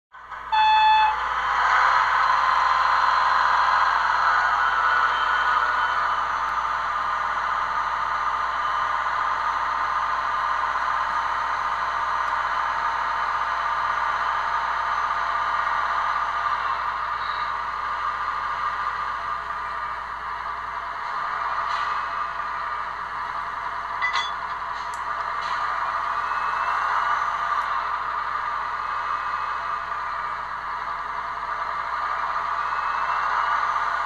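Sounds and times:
model train engine sound with clatter: 0.2 - 34.0
model train horn blast: 0.5 - 1.2.

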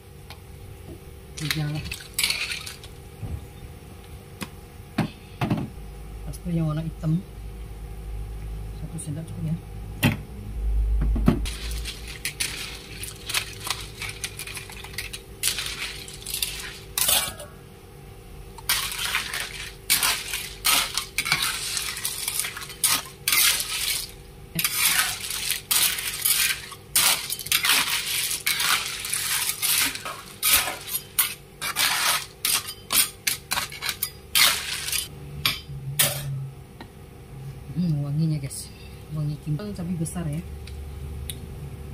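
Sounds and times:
spoon scraping wok: 11.5 - 17.5, 18.6 - 36.4.

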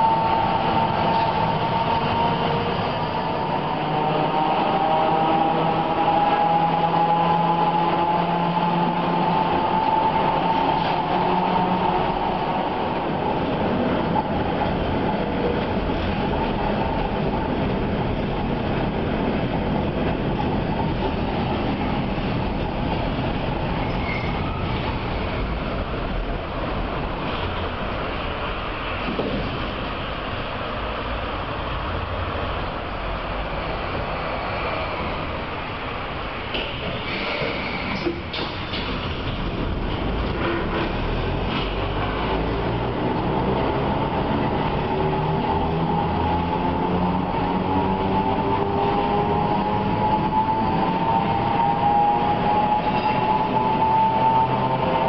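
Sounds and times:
electric tram whine: 0.0 - 55.0
wheels rumbling on rails: 0.0 - 55.0.

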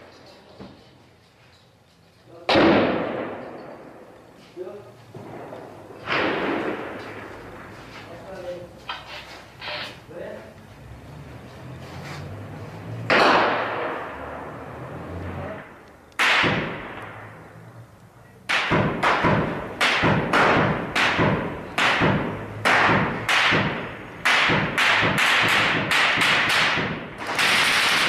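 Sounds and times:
gunshots echoing: 2.5 - 4.2, 5.2 - 7.8, 13.1 - 14.6, 16.2 - 17.5, 18.5 - 28.0.

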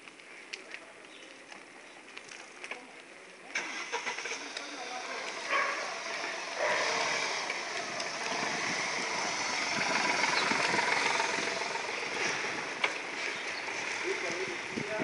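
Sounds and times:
car engine and road noise: 3.5 - 15.0.

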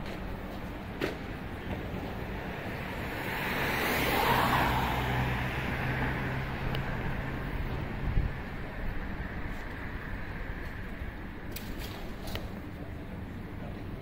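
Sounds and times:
low engine hum: 0.0 - 11.5
vehicle passing: 2.6 - 8.7.

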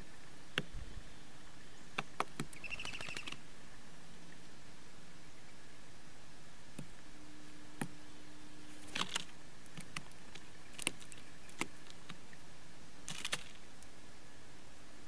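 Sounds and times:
birds pecking on wooden boards: 1.9 - 3.4, 8.7 - 12.3, 13.1 - 13.7.

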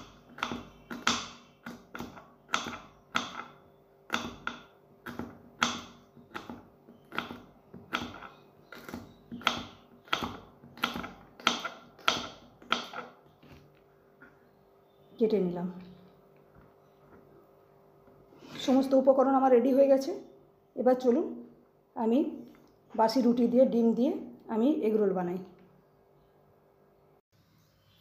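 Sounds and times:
knife chopping on wooden board: 0.0 - 13.6.

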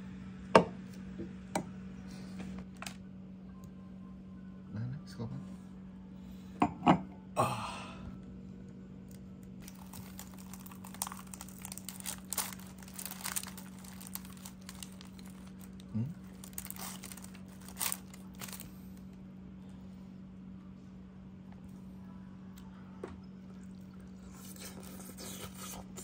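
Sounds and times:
low hum: 0.0 - 26.0
fried chicken crunching: 9.6 - 18.8, 24.2 - 26.0
paper crinkling: 9.6 - 19.0.

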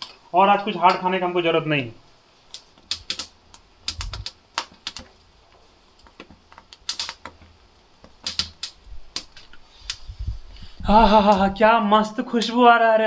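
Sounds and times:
corn kernels popping and crackling: 2.3 - 13.0.

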